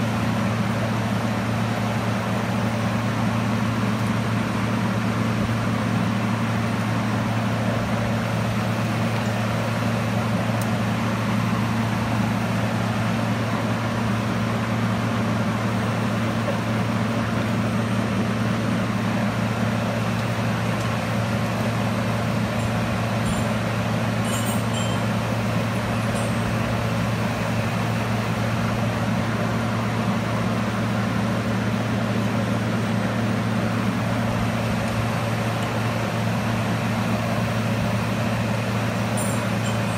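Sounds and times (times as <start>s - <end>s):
cooling fan air rushing: 0.0s - 39.9s
low double-toned electrical hum: 17.2s - 30.4s.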